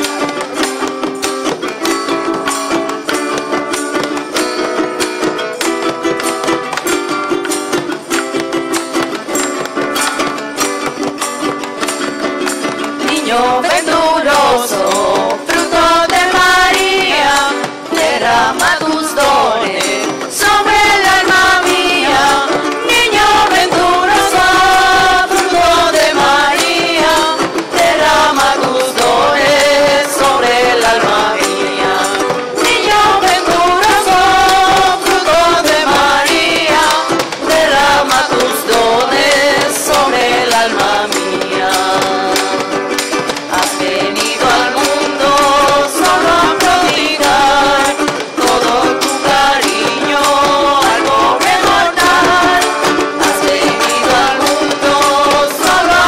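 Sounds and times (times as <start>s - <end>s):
instrumental accompaniment: 0.0s - 56.0s
steady percussion beat: 0.0s - 56.0s
group singing a hymn: 12.6s - 56.0s.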